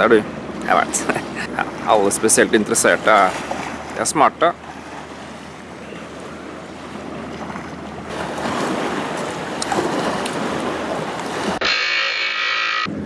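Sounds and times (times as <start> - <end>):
waves washing on rocky shore: 0.7 - 11.8.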